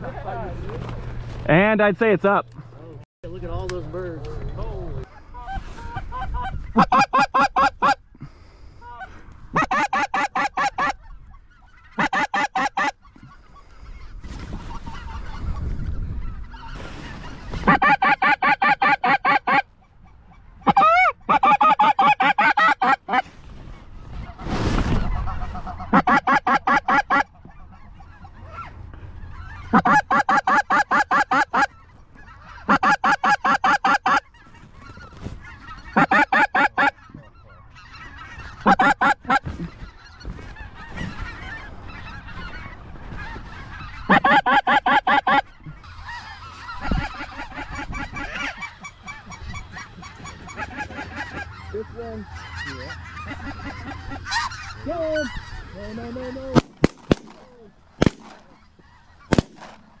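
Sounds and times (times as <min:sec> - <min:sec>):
flock of geese calling: 0:03.5 - 1:00.0
goose calls close up: 0:43.8 - 0:56.4.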